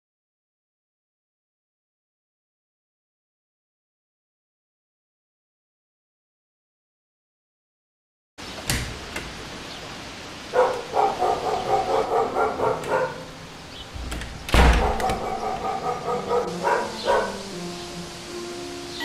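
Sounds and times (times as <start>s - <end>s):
dull thump: 14.0s - 15.3s.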